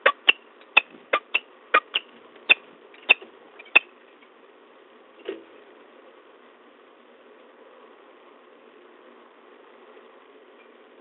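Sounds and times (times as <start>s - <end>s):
falcon chittering: 0.0s - 3.9s.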